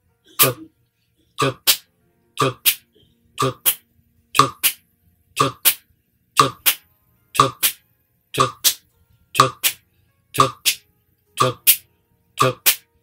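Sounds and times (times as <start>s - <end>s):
man singing short syllables: 1.4s - 1.8s, 2.4s - 2.8s, 3.4s - 3.8s, 5.4s - 5.8s, 6.4s - 6.8s, 7.4s - 7.8s, 8.4s - 8.8s, 9.4s - 9.8s, 10.4s - 10.8s, 11.4s - 11.8s, 12.4s - 12.8s
hands clapping: 10.4s - 10.8s.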